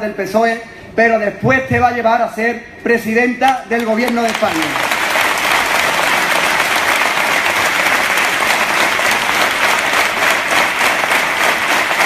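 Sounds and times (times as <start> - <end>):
crowd applauding: 3.8 - 12.0.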